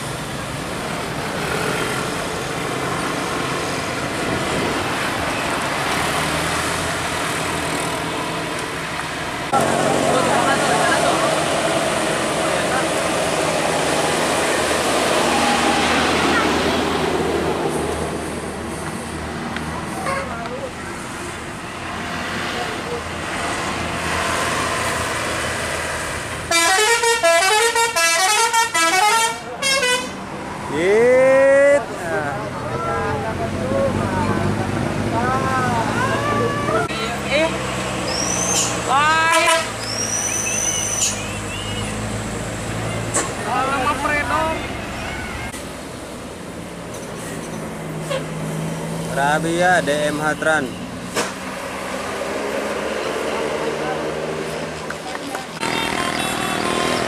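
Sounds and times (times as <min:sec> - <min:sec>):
bus passing: 0:00.0 - 0:57.0
cars passing: 0:00.0 - 0:57.0
motorcycle passing: 0:09.5 - 0:17.6
multi-tone bus horn tune: 0:26.5 - 0:30.2, 0:39.2 - 0:39.8, 0:55.6 - 0:57.0.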